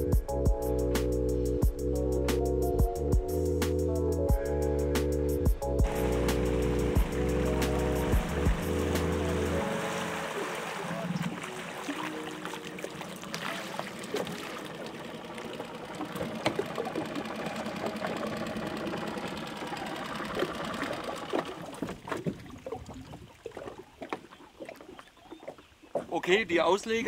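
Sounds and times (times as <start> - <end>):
river water splashing: 5.8 - 27.0.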